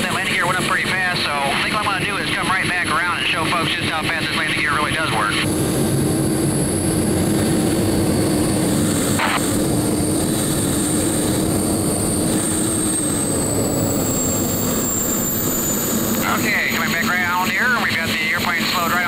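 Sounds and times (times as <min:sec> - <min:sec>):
small turbojet running: 0:00.0 - 0:19.0
high whine falling in pitch: 0:06.0 - 0:17.6.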